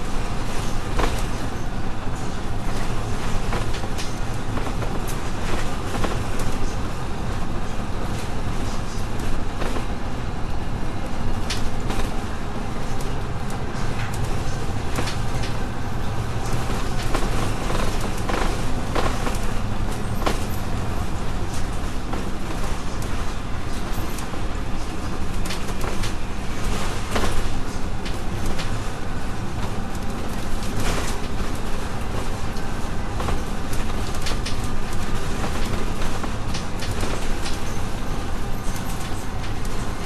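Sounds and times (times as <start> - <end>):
bus engine drone: 0.0 - 40.0
road rumble: 0.0 - 40.0
bodywork rattles and clicks: 12.8 - 40.0.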